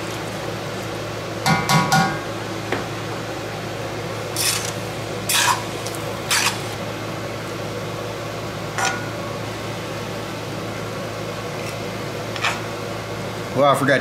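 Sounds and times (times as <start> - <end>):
steady low hum: 0.0 - 14.0
spoon scraping a wok: 4.4 - 5.7.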